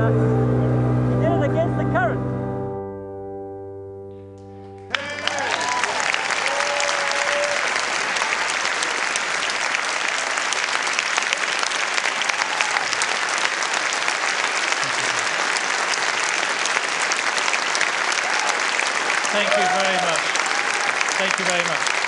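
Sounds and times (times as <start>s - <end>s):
audience applauding: 4.9s - 22.0s.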